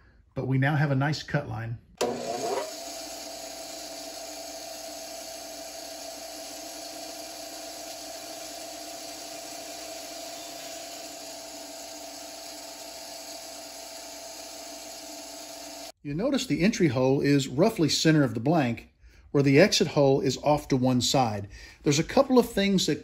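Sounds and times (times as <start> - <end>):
bandsaw humming: 2.0 - 16.0.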